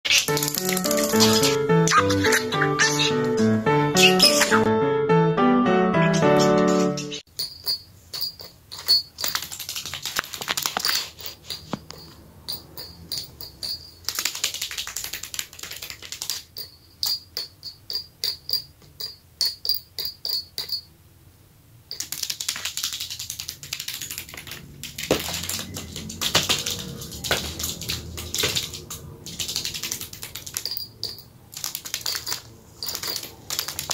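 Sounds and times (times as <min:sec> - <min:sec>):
bird pecking small bells: 0:00.1 - 0:01.6, 0:07.3 - 0:21.0, 0:21.9 - 0:33.9.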